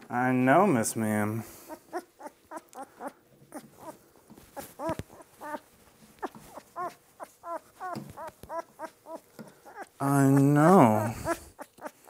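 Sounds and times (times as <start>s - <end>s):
puppy whimpering: 1.6s - 12.0s.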